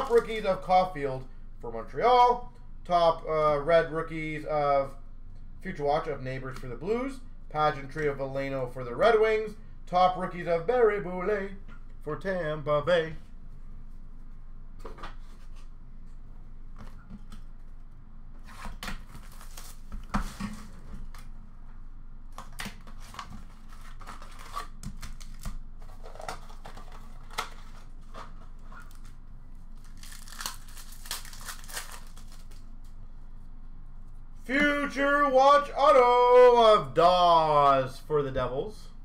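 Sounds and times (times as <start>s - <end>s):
card packs being torn open: 0.0s - 0.5s, 19.0s - 20.4s, 22.4s - 32.8s.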